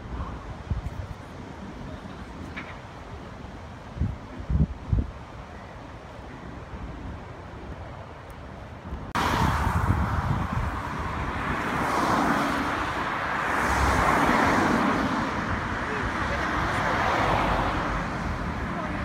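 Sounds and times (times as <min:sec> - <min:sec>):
highway traffic: 0:00.0 - 0:19.0
wind-like outdoor noise: 0:00.0 - 0:19.0.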